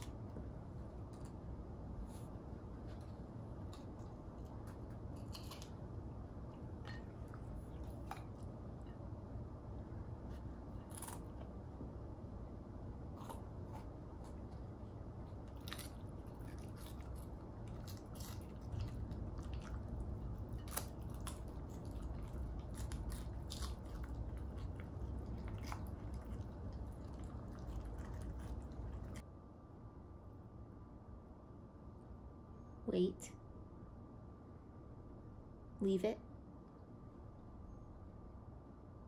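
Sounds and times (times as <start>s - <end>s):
puppy chewing crunchy pod: 0.0s - 12.0s, 12.9s - 29.2s
low steady rumble: 0.0s - 39.0s.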